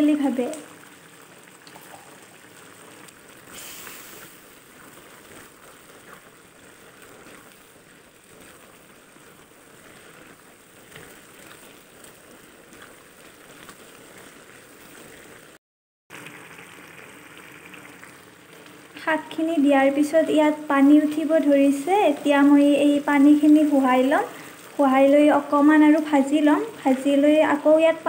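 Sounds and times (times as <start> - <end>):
vegetables bubbling in a wok: 0.0 - 28.0
brief hiss: 3.5 - 4.5.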